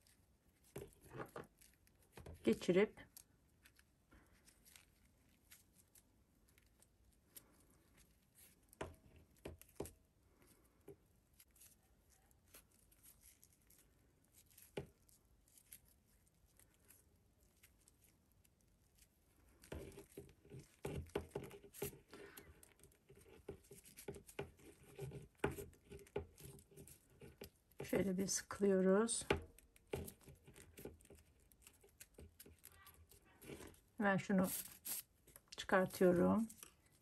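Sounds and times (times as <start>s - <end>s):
paper cord rustling: 0.0s - 37.0s.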